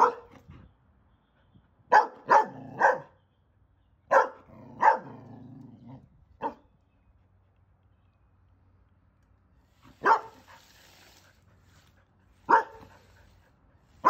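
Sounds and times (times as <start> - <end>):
dog barking: 0.0 - 0.4, 1.9 - 3.2, 4.1 - 5.2, 6.4 - 6.6, 10.0 - 10.5, 12.5 - 13.0.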